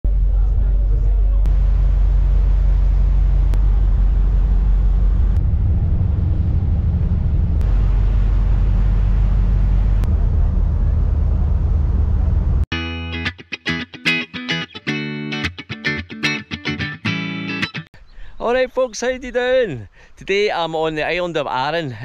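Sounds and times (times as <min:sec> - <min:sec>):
loud low rumble: 0:00.0 - 0:12.7.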